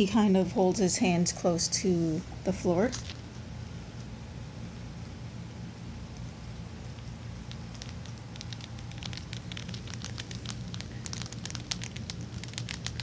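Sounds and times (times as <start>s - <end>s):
low steady hum: 0.0s - 13.0s
rat chewing dry food: 7.0s - 13.0s.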